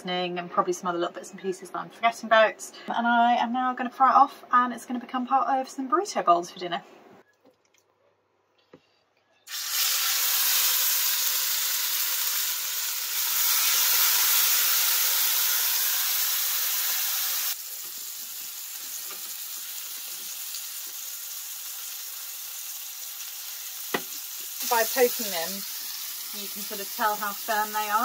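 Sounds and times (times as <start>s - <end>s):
meat sizzling in a frying pan: 9.5s - 28.0s.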